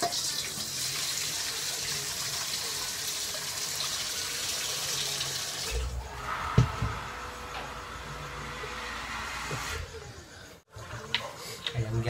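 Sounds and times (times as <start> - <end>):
thump: 6.5 - 7.0.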